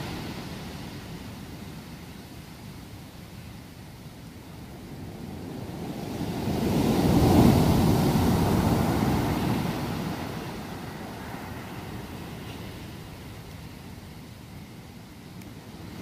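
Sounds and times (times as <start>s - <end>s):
wave breaking on beach: 0.0s - 2.1s, 5.1s - 13.8s.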